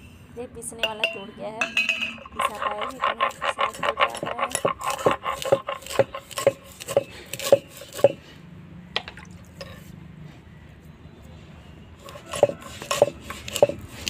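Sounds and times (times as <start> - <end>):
stone roller grinding seeds: 1.7 - 8.3, 12.0 - 14.0.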